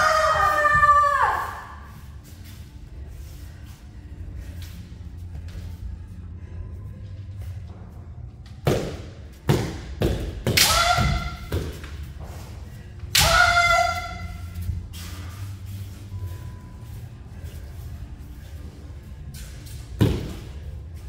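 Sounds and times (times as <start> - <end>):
high shout: 0.0 - 1.9, 10.6 - 11.5, 13.1 - 14.6
bamboo swords clacking: 9.5 - 12.0.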